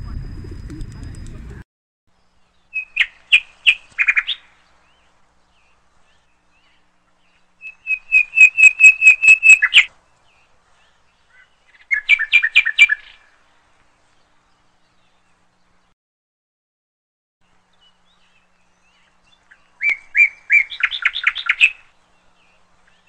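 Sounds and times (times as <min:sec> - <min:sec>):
hornbill calling: 0:07.6 - 0:09.9.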